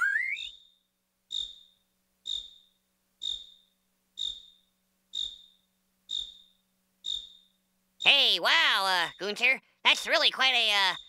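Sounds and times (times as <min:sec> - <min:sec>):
cartoon cricket chirping: 0:00.0 - 0:11.0.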